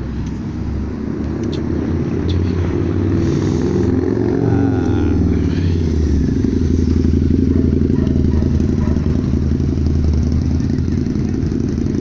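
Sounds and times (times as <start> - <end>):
motorcycle engine running: 2.7 - 12.0.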